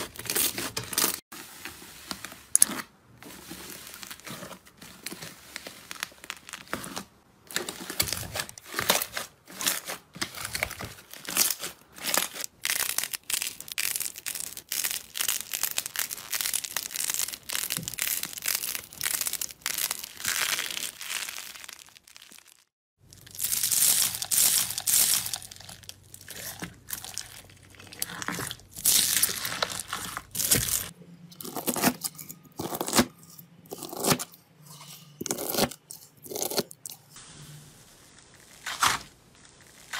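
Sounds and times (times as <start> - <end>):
hands squeezing crackling slime: 11.2 - 30.9.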